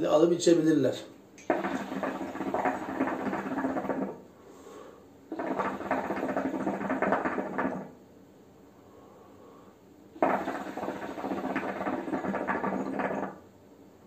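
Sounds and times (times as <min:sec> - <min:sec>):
hookah water bubbling: 0:01.4 - 0:04.3, 0:05.3 - 0:08.0, 0:10.2 - 0:13.6.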